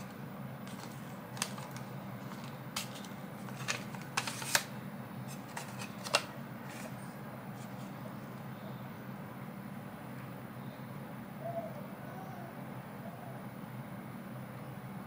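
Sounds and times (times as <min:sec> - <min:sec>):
light plastic scraping: 0:00.0 - 0:08.0.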